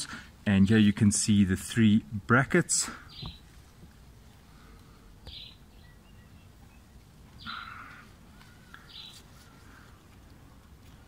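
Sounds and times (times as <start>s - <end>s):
bird calls: 2.9s - 3.5s, 4.5s - 10.1s.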